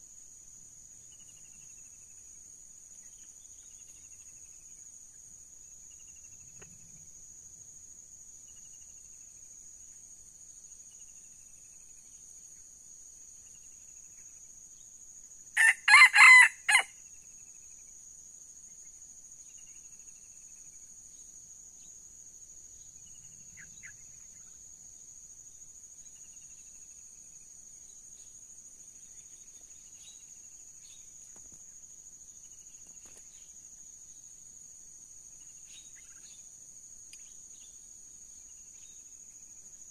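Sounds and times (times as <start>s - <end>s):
insects buzzing: 0.0s - 39.9s
rooster crowing: 15.6s - 16.9s.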